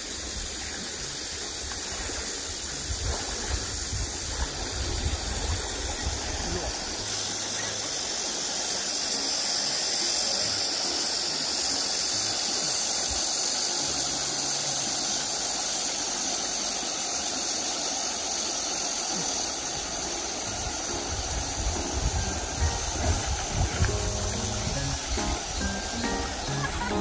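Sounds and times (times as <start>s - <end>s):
stream rushing over stones: 0.0s - 27.0s.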